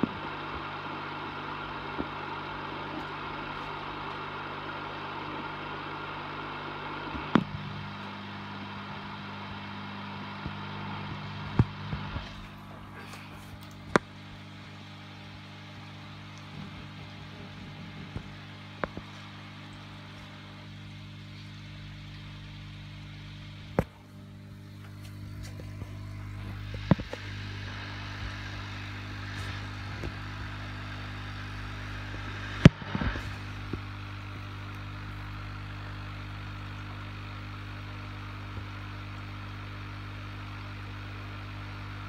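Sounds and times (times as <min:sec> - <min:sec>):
aquarium filter humming: 0:00.0 - 0:42.0.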